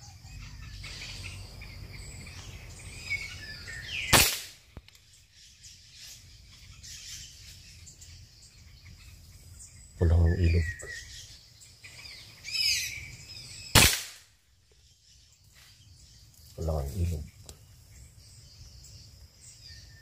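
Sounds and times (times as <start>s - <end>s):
small birds chirping: 0.0s - 20.0s
air rifle shot: 4.1s - 4.8s, 13.7s - 14.3s.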